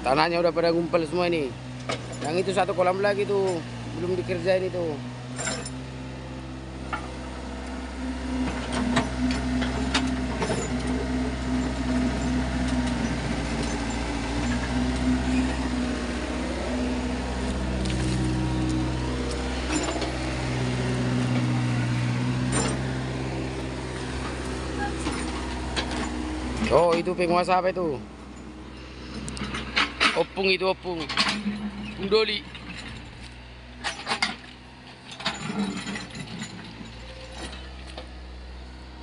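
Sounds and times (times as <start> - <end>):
excavator diesel engine running: 0.0 - 39.0
bucket knocking and scraping stones: 17.3 - 18.8.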